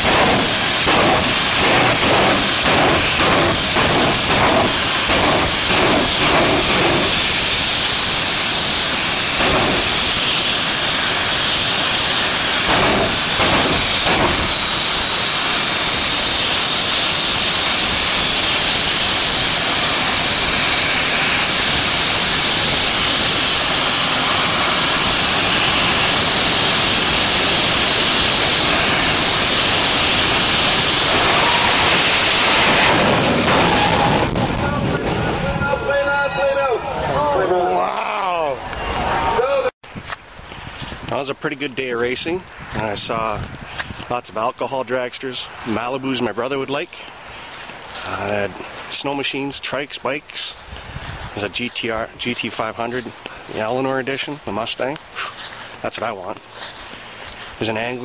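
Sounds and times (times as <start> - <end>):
sharp engine pops: 0.0 - 7.3, 9.4 - 10.4, 12.6 - 14.6
turbine engine hiss and whine: 0.0 - 58.0.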